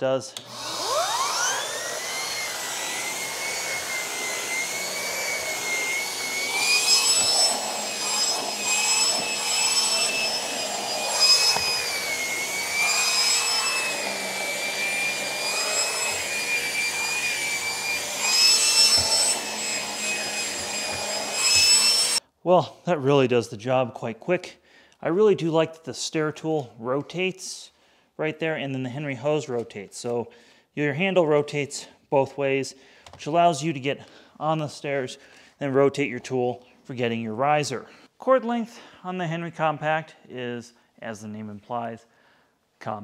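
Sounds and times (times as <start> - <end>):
vacuum turbo tool whine: 0.4 - 22.2.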